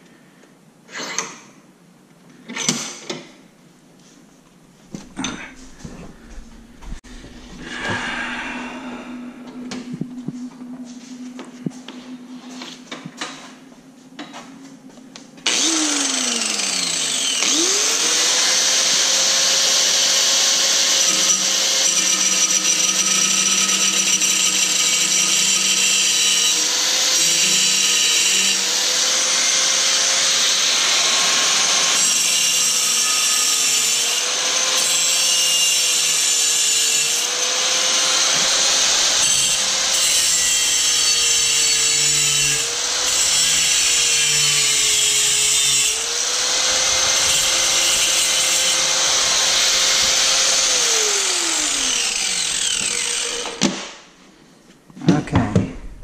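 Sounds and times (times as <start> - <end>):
power tool motor whine: 15.4 - 53.7.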